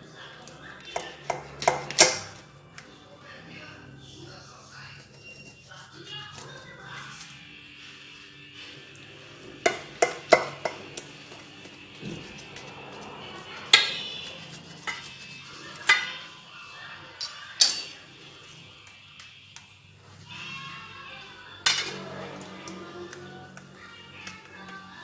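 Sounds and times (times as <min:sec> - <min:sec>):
knife clinking on steel plate: 0:17.2 - 0:18.0.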